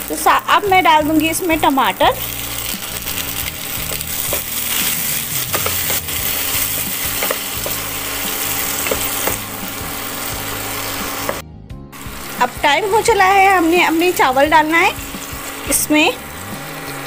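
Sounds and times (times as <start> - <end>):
vegetables sizzling in hot oil: 0.0 - 11.4, 12.0 - 17.0
wooden spatula clicking against pan: 8.8 - 9.4.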